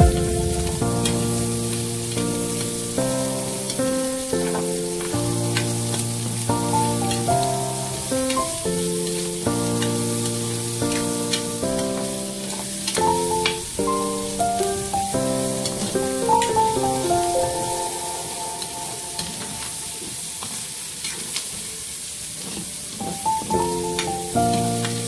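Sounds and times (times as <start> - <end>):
instrumental background music: 0.0 - 19.9
meat and onions sizzling in a pan: 4.4 - 25.0.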